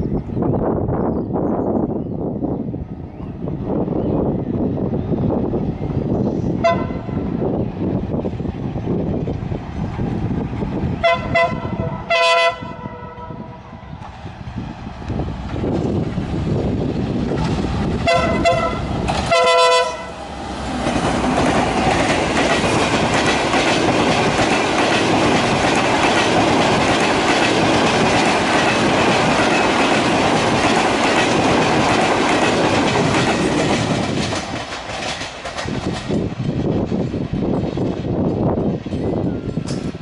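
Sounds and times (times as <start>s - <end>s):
train wheels rumbling on rails: 0.0s - 40.0s
locomotive horn blasts: 6.6s - 7.2s, 11.0s - 13.6s, 18.0s - 20.2s.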